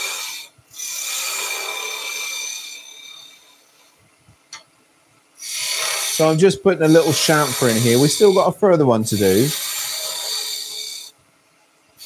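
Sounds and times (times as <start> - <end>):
chisel cutting spinning wood: 5.5 - 11.1.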